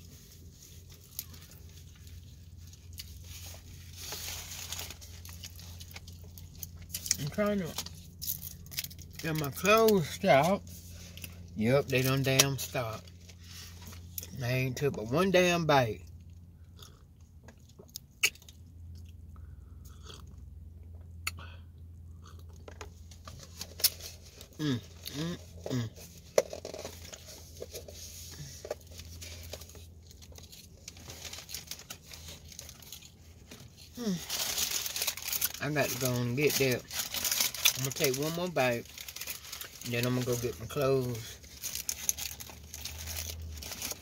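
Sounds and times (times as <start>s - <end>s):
low steady hum: 0.0s - 44.0s
person chewing: 16.1s - 27.2s.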